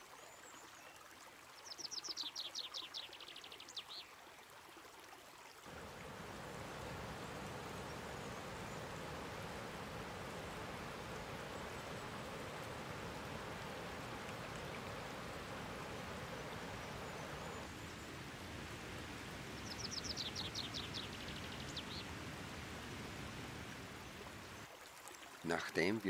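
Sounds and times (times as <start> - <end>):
river rushing over weir: 5.7 - 24.4
songbird trill: 5.9 - 18.0, 19.5 - 22.1.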